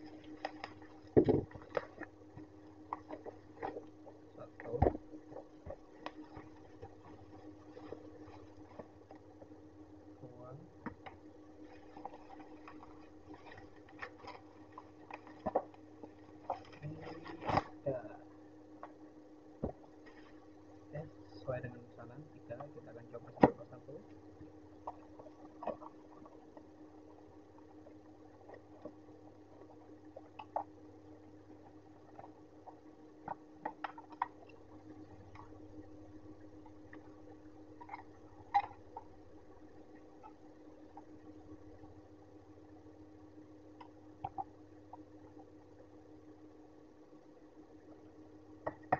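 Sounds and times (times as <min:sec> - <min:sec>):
steady low hum: 0:00.0 - 0:48.9
plastic wrapping crinkling: 0:11.6 - 0:17.8.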